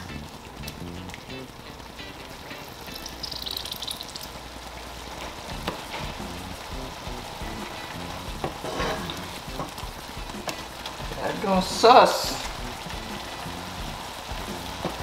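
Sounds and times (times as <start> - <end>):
soft background music: 0.0 - 3.9, 5.2 - 15.0
sauce sizzling in a skillet: 0.0 - 15.0
wooden spoon stirring: 8.4 - 11.8.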